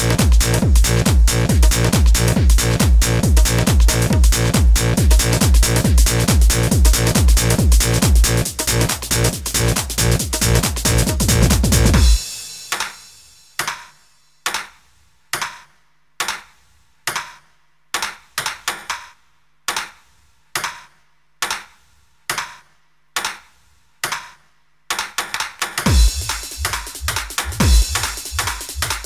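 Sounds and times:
sharp percussive hit: 12.0s - 14.0s.

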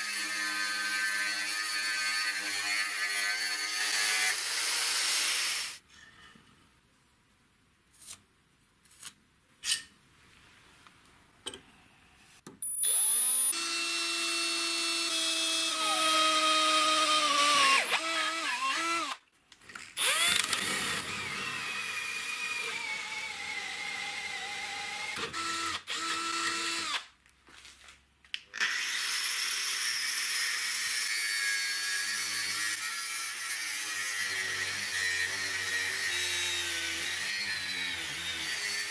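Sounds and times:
angle grinder cutting metal: 0.0s - 5.8s, 12.8s - 19.2s, 28.6s - 38.9s.

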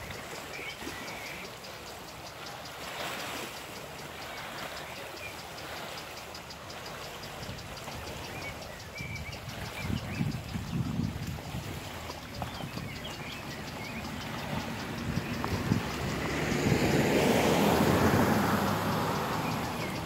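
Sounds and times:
faint chirps: 0.0s - 11.3s
small waves lapping on pebbles: 0.0s - 20.0s.

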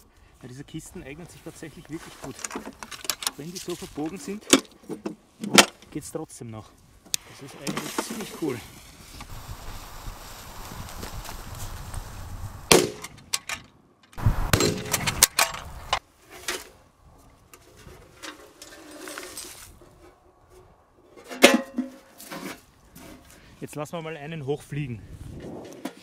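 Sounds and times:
firecracker fuse hissing: 8.4s - 12.7s
metal can clanking: 21.1s - 22.6s.

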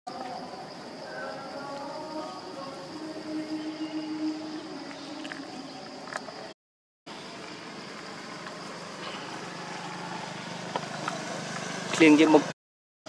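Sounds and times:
distant vehicles hum: 7.1s - 12.6s.

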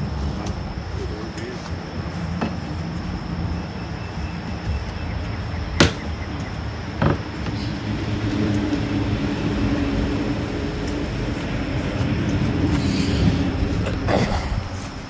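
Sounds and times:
engine-like drone: 0.0s - 15.0s
low rumble: 0.0s - 15.0s
sharp wooden knocks: 5.8s - 6.2s, 7.0s - 7.6s.

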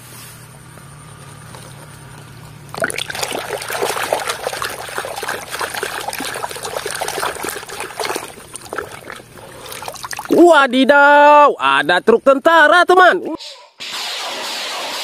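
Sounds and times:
water splashing in plastic basin: 2.7s - 10.4s
sponge scrubbing toys: 2.8s - 10.4s.

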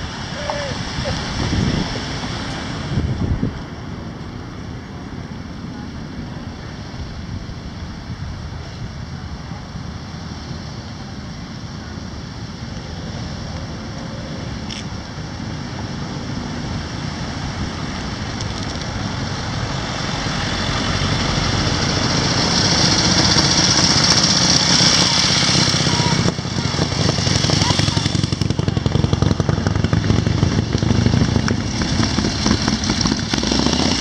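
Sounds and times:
motorcycles riding: 0.0s - 34.0s
pickup truck passing: 9.8s - 34.0s.

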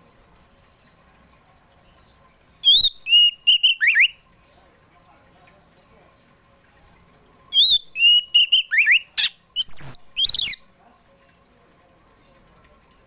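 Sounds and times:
bird singing whistled notes: 2.6s - 4.2s, 7.5s - 10.6s.

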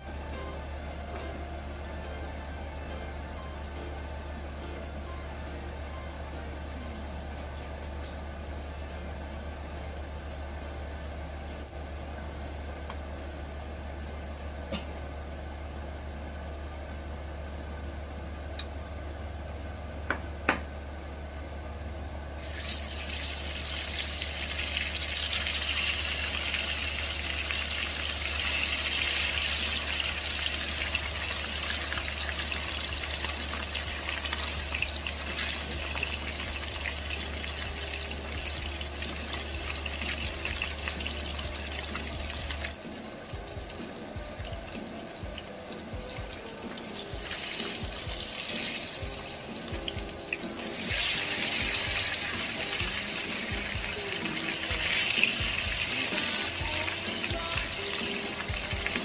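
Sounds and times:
low hum: 0.0s - 59.0s
fish sizzling in hot oil: 22.4s - 43.8s, 46.4s - 59.0s.

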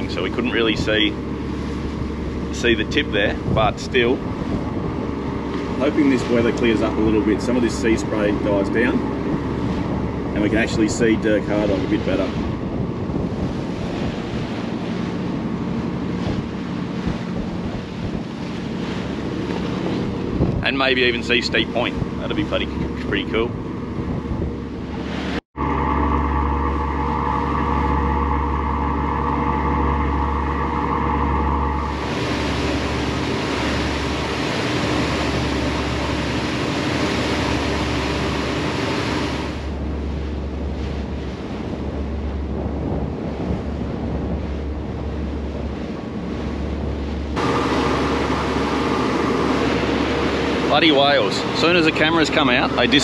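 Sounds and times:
boat engine drone: 0.0s - 53.0s
wind and spray rushing: 24.0s - 52.9s.

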